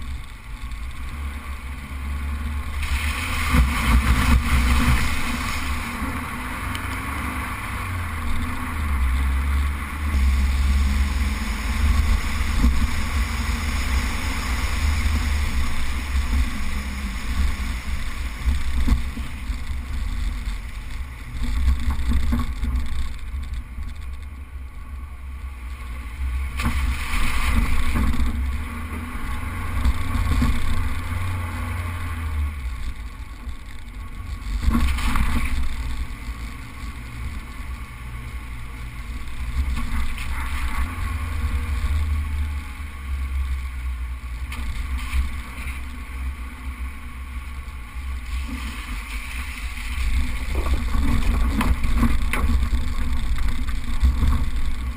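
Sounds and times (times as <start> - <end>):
vehicle driving on sand rumble: 0.0 - 54.9.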